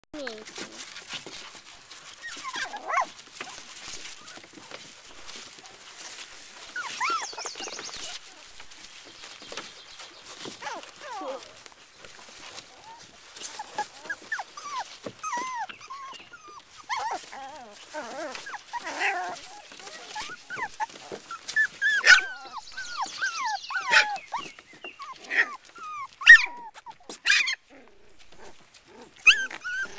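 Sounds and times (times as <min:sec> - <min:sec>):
shredded paper rustling: 0:00.2 - 0:15.6, 0:16.6 - 0:24.8
puppies whimpering: 0:00.3 - 0:29.9.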